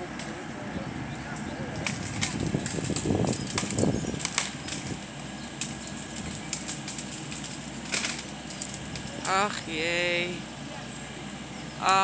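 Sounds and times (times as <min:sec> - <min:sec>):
wood rustling and breaking: 0:01.8 - 0:09.2
branches cracking and snapping: 0:01.8 - 0:09.3.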